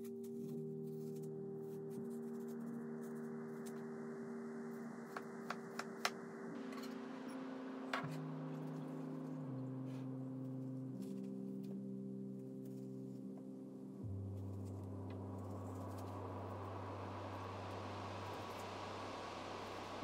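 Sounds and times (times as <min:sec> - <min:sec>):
soft background music: 0:00.0 - 0:20.0.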